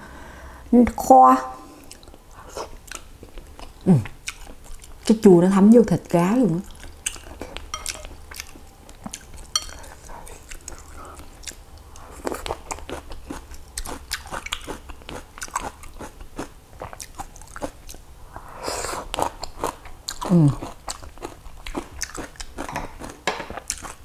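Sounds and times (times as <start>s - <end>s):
wet chewing: 1.8s - 5.2s, 6.0s - 18.0s, 19.1s - 24.0s
chopsticks tapping glass bowl: 7.7s - 8.1s.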